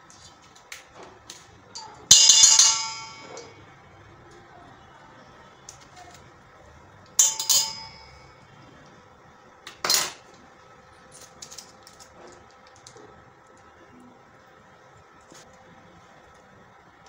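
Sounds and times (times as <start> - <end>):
spoons clinking on steel bowl: 1.8 - 3.6, 7.2 - 8.3.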